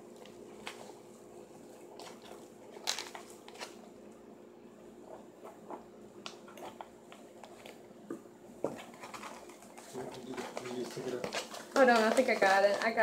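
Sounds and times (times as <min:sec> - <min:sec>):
paper envelope rustling: 0:02.0 - 0:03.8, 0:08.8 - 0:13.0.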